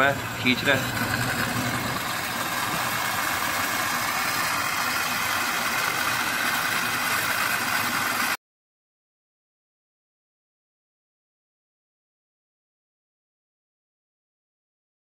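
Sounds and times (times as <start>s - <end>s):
refrigerator compressor humming: 0.0s - 8.4s.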